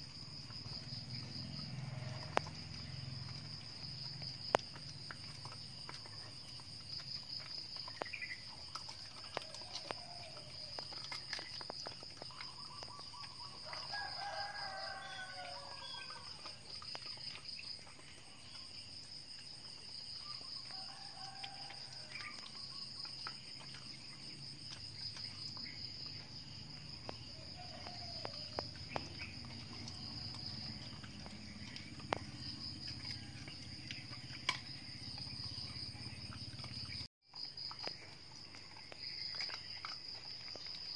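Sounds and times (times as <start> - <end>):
high insect trill: 0.0 - 40.9
rooster crowing: 9.3 - 10.8, 13.6 - 16.4, 20.7 - 22.4, 27.4 - 28.6.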